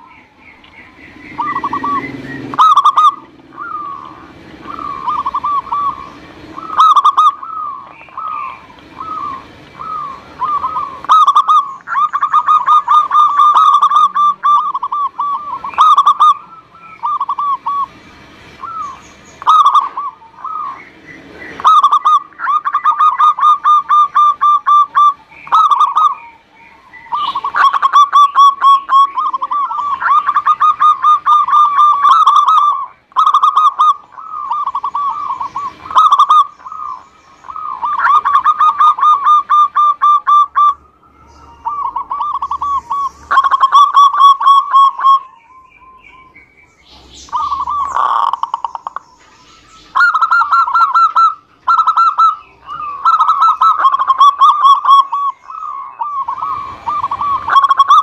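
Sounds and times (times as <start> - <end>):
dove cooing: 0.0 - 58.0
sharp high chirps: 27.1 - 58.0.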